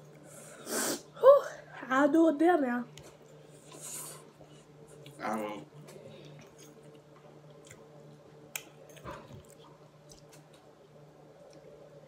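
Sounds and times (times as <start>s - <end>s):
steady low hum: 0.0s - 12.0s
noodles being chewed: 3.0s - 10.7s.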